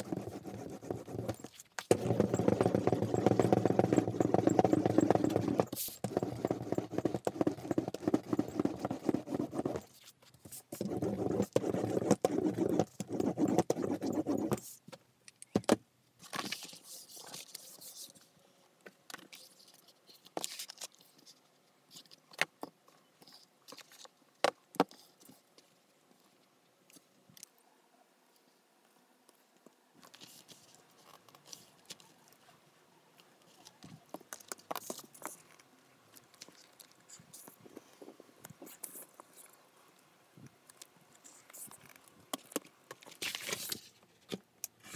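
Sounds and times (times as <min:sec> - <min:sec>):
paper rustling by hand: 0:16.2 - 0:18.3.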